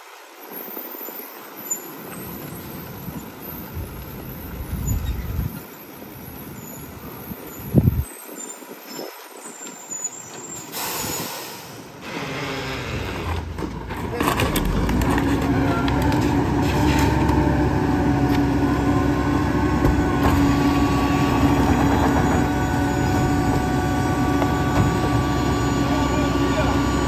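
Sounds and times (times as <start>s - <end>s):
air brakes hissing: 10.4s - 12.1s
garbage truck diesel engine: 10.4s - 27.0s.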